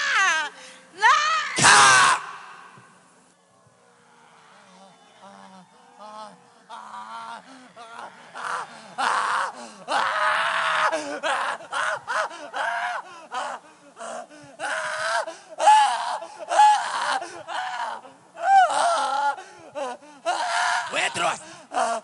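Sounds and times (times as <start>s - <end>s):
person screaming and wailing: 0.0s - 2.8s, 6.7s - 22.0s
person gasping: 0.5s - 0.9s, 21.4s - 22.0s.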